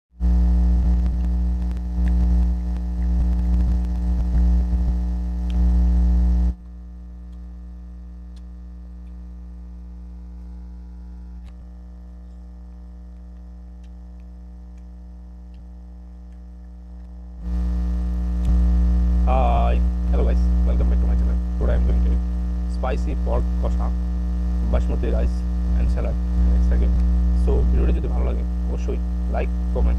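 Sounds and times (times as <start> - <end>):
electrical mains hum: 0.2 - 29.9
man talking: 19.2 - 24.0, 24.6 - 29.9.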